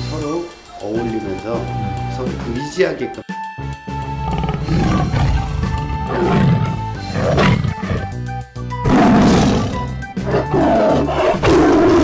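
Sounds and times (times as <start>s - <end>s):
background music: 0.0s - 12.0s
tiger-like roar: 4.1s - 12.0s.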